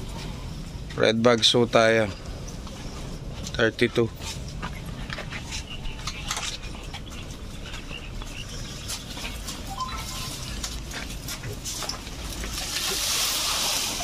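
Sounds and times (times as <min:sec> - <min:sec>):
rushing patter of pouring fruit: 0:12.4 - 0:14.0.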